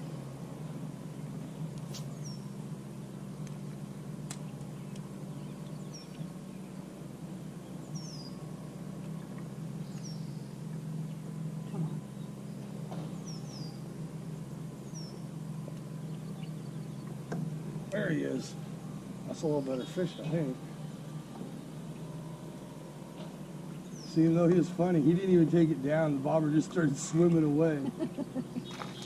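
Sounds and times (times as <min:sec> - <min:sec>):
steady low hum: 0:00.0 - 0:29.0
small bird chirping: 0:01.4 - 0:02.6, 0:04.3 - 0:06.9, 0:07.6 - 0:08.5, 0:09.1 - 0:13.9, 0:14.8 - 0:17.3, 0:23.4 - 0:24.2.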